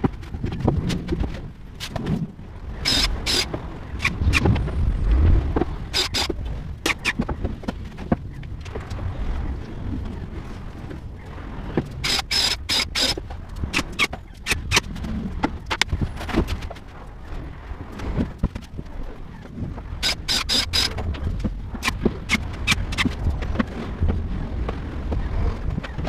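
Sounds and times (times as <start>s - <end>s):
low rumble: 0.0s - 12.5s.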